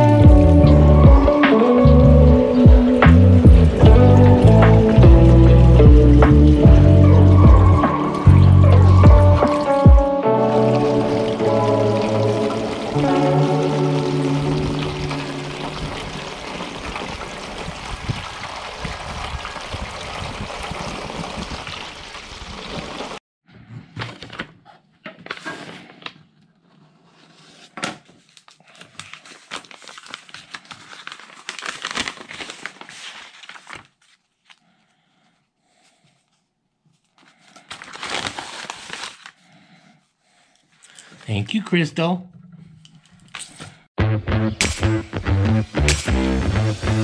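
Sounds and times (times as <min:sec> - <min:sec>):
rainwater pouring from downspout: 0:10.4 - 0:23.2
paper envelope crinkling: 0:24.0 - 0:34.8, 0:36.9 - 0:39.6.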